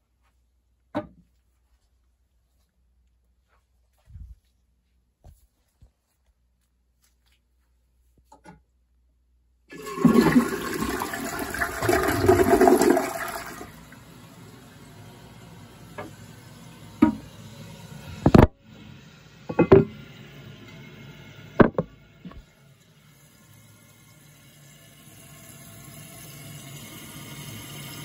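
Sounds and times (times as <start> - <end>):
toilet tank refilling hiss: 9.7 - 21.7, 22.4 - 28.0
toilet flushing: 9.7 - 28.0.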